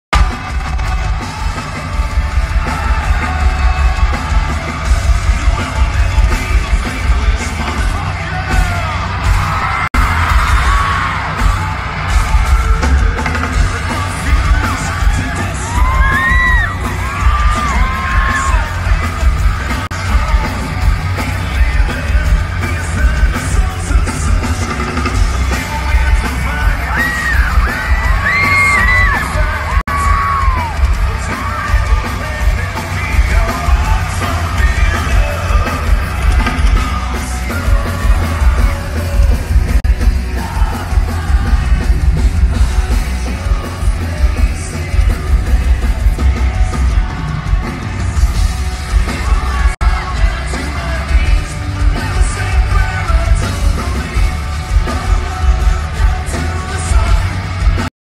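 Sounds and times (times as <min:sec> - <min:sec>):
heavy bass: 0:00.1 - 0:57.9
pounding drums: 0:00.1 - 0:57.9
person yelling and singing: 0:00.2 - 0:24.5, 0:25.4 - 0:41.8.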